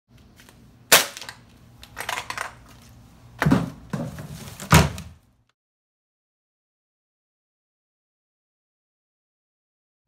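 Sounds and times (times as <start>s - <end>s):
aluminium can crushed underfoot: 0.9s - 2.6s
plastic bin lid banging: 3.4s - 5.2s.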